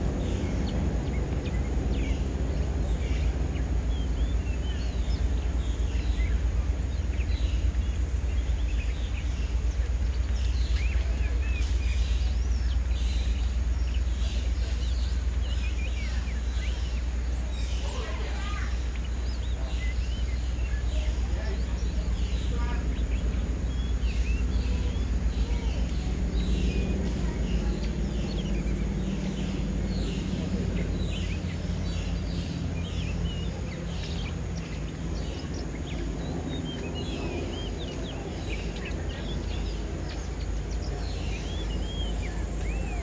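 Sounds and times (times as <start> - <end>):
low background rumble: 0.0 - 43.0
small birds chirping: 0.0 - 43.0.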